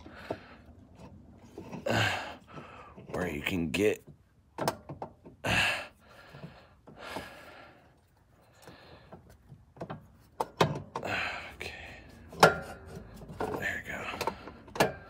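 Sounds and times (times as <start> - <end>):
man breathing heavily: 0.0 - 0.9, 1.7 - 3.1, 5.4 - 9.5, 11.0 - 15.0.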